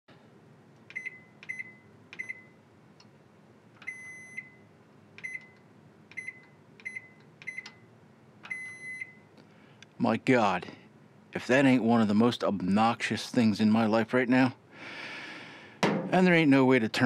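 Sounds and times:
microwave keypad beeps: 0.9s - 2.6s, 3.8s - 9.3s.

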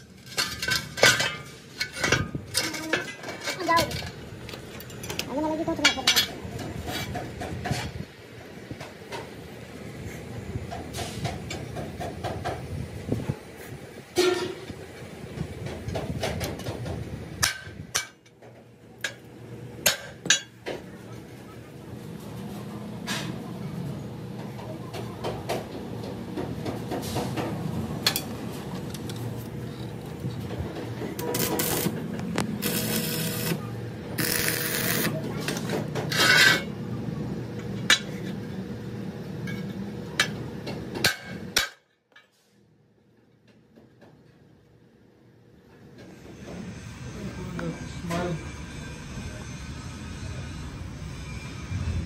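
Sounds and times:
workshop noise: 0.0s - 52.0s
welding arc crackling: 31.2s - 35.2s.

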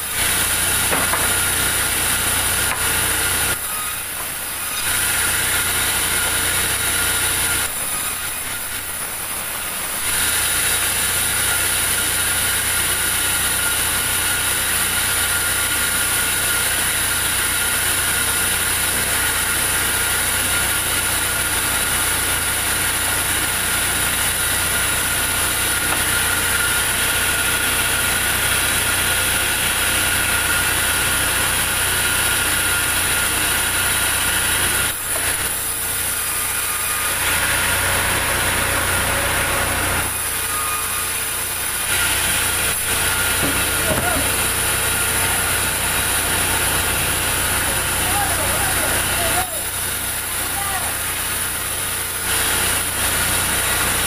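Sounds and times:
band saw whining: 0.0s - 54.0s.

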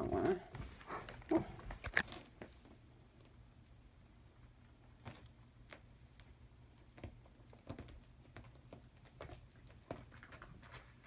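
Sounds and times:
low steady hum: 0.0s - 5.2s.

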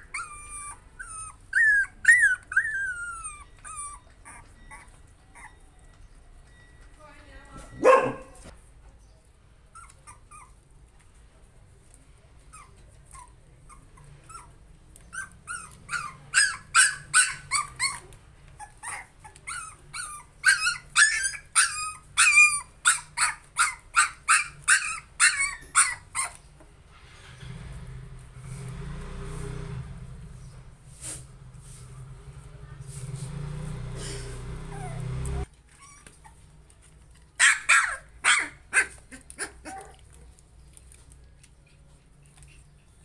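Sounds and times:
puppies yipping and squealing: 0.0s - 6.6s, 9.7s - 10.6s, 12.5s - 26.7s, 33.7s - 43.0s.

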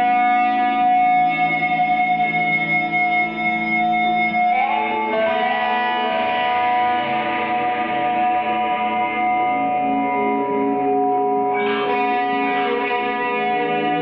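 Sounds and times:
electric guitar drone: 0.0s - 14.0s.

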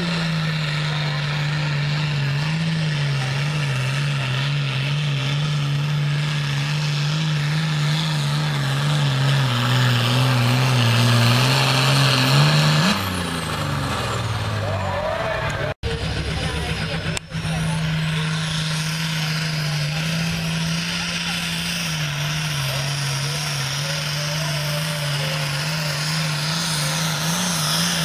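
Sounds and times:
tractor diesel engine revving hard: 0.0s - 28.0s.

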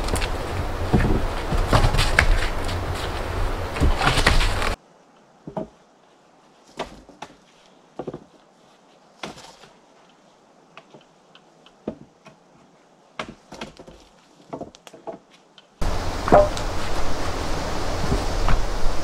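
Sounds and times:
wooden poles knocking: 0.0s - 4.8s, 8.0s - 8.3s, 11.7s - 12.4s, 13.2s - 17.1s
loud rush of noise: 15.8s - 19.0s.

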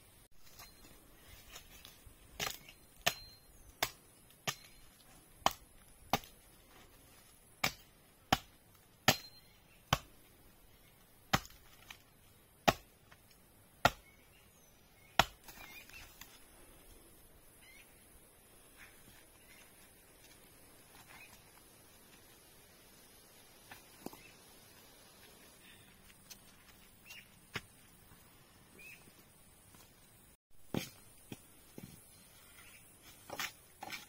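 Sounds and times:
blade chopping wood: 2.4s - 4.8s, 5.4s - 6.4s, 7.6s - 10.1s, 11.3s - 12.0s, 12.6s - 13.0s, 13.8s - 14.1s, 15.2s - 15.7s.

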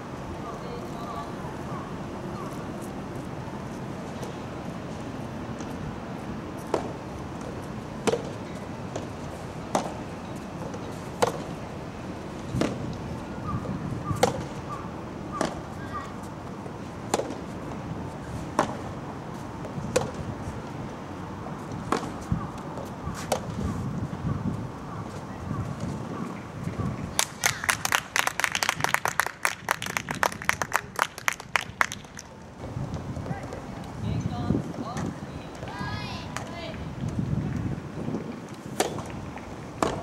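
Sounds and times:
racket hitting tennis ball: 6.6s - 11.6s, 12.4s - 13.1s, 14.1s - 14.7s, 15.3s - 19.0s, 19.6s - 20.3s, 21.6s - 23.8s, 38.2s - 40.0s
ball bouncing: 38.8s - 40.0s.

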